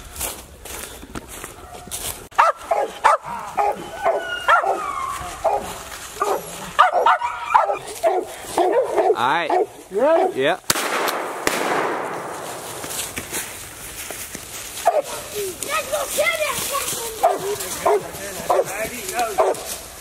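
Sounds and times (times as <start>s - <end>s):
dogs barking sharply: 1.7s - 10.4s, 14.8s - 15.2s, 17.2s - 19.7s.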